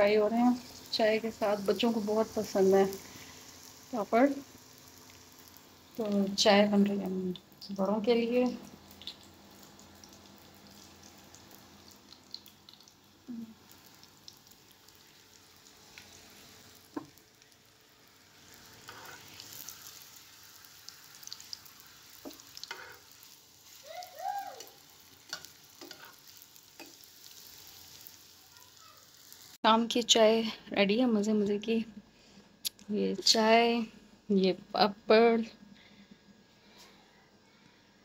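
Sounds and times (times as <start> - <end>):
faint frying sizzle: 0.0 - 38.0
spatula clicks and scrapes: 22.6 - 23.1, 25.3 - 27.0.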